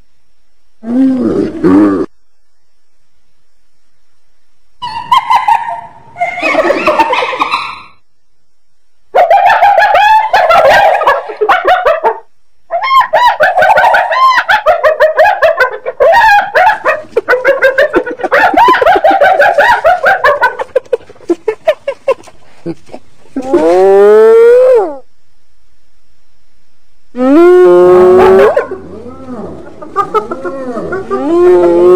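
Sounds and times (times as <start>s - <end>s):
hyena giggling calls: 4.8s - 8.0s, 9.2s - 25.0s, 27.3s - 31.9s.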